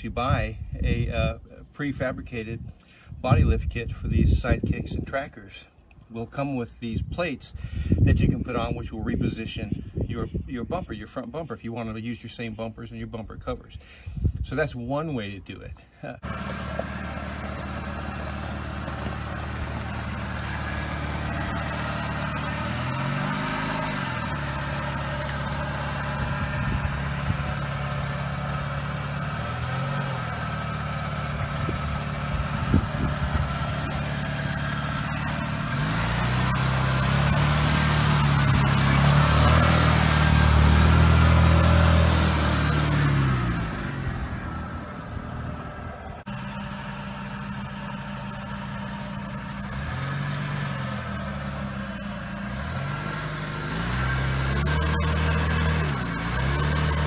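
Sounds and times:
car engine revving: 0:16.2 - 0:57.0
tires on gravel: 0:16.2 - 0:57.0.

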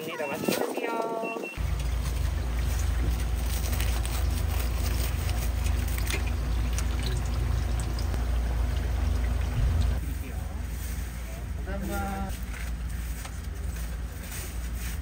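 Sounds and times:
oil sizzling in a deep fryer: 0:01.6 - 0:10.0.

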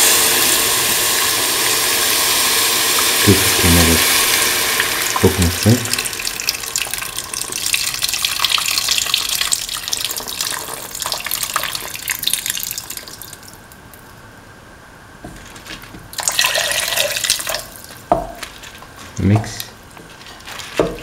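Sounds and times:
liquid pouring into a steel pan: 0:00.0 - 0:13.5, 0:16.1 - 0:17.8.

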